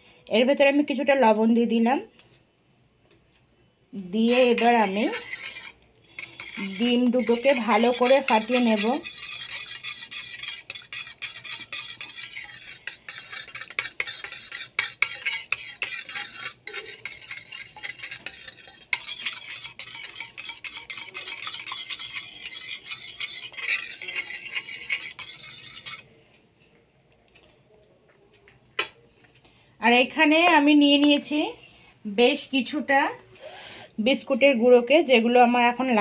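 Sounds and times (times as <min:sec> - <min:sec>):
fork beating eggs on a plate: 0:04.2 - 0:26.0.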